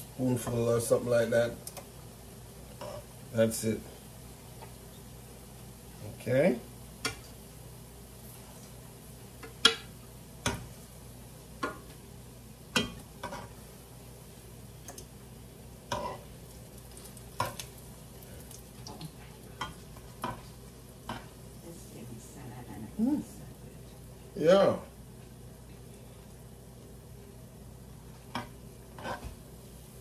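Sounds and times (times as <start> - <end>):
food sizzling in oil: 0.0 - 30.0
metal tongs tapping pan: 12.7 - 13.4.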